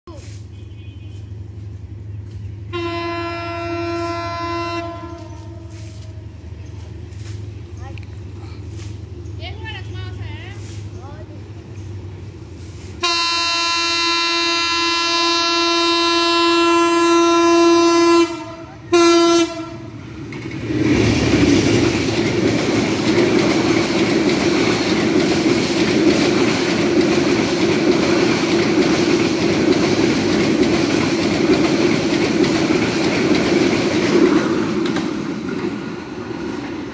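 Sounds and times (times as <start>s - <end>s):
locomotive horn blasts: 0.4s - 1.5s, 2.7s - 6.2s, 13.0s - 20.0s
train wheels clattering on rails: 19.4s - 36.9s.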